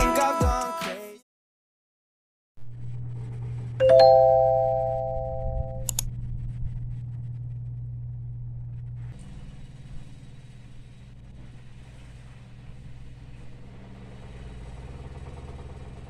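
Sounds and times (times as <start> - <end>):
steady low hum: 2.6 - 16.0
electronic chime: 3.8 - 5.8
click: 5.8 - 6.1.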